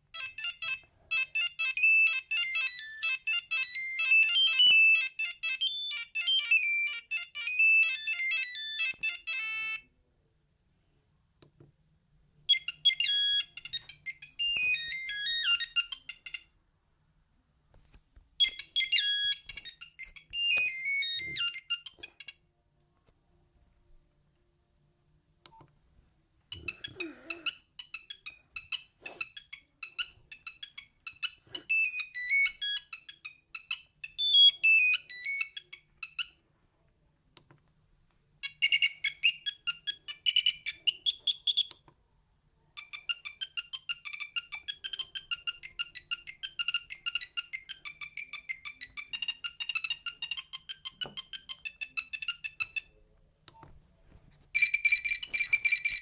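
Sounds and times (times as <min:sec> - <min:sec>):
monophonic ringtone beeping melodies: 0:00.1 - 0:09.9, 0:12.5 - 0:16.5, 0:18.4 - 0:22.5, 0:26.5 - 0:36.4, 0:38.5 - 0:41.7, 0:42.8 - 0:53.0, 0:54.6 - 0:56.0.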